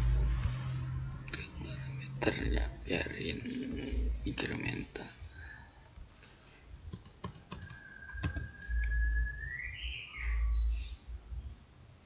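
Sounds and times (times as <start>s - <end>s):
keyboard and mouse clicks: 6.9s - 8.6s
thin whistle-like tone: 7.6s - 10.6s.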